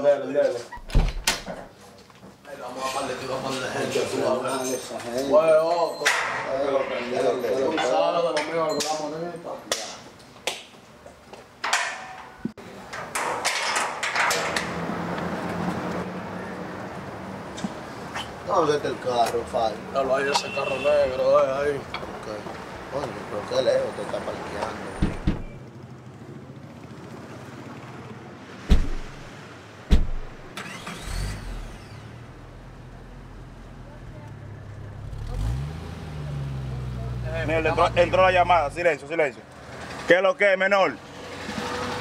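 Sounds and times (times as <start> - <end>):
street noise: 0.0 - 42.0
car doors slamming: 25.0 - 25.6, 28.6 - 29.3, 29.9 - 30.8
car engine starting: 29.9 - 38.7.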